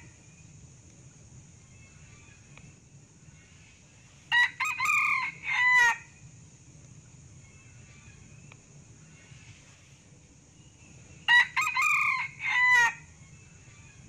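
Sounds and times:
faint high hiss: 0.0s - 11.3s
junglefowl crowing: 4.3s - 6.2s, 11.3s - 13.1s.

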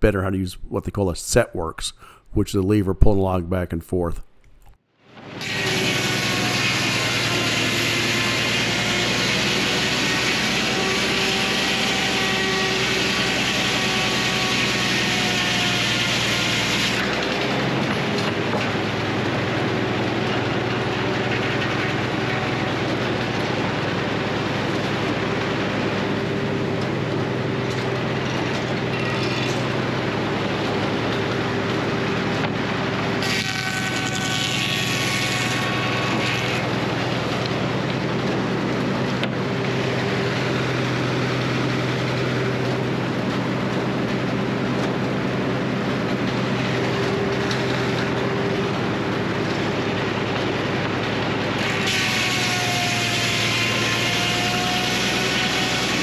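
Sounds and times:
sawmill machinery hum: 5.1s - 56.0s
saw whine with falling tones: 5.4s - 26.8s.

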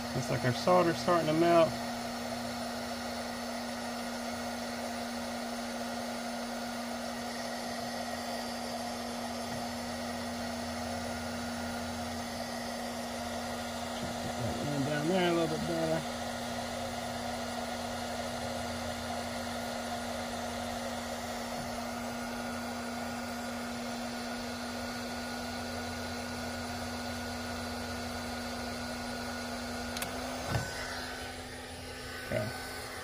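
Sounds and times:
heat gun blowing with hum: 0.0s - 33.0s
click: 29.9s - 30.2s.

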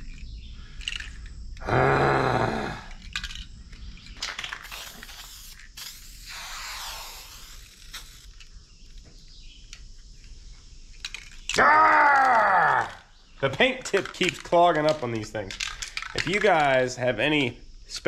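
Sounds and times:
spray paint can hissing: 4.4s - 8.4s
person speaking: 12.2s - 18.0s.

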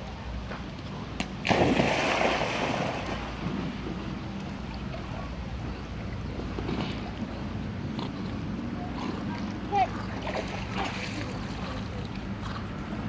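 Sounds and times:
dog splashing into water: 1.4s - 3.5s.

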